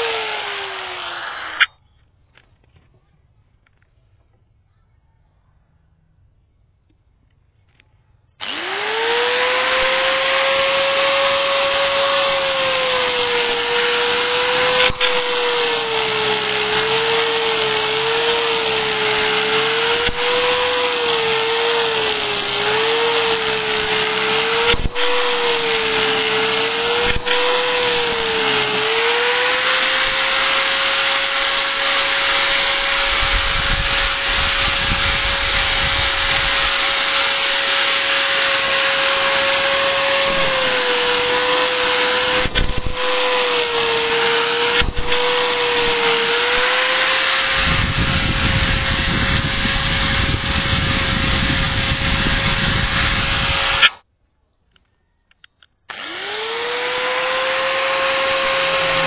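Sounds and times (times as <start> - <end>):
angle grinder grinding steel blade: 0.0 - 1.7, 8.4 - 54.0, 55.9 - 59.0.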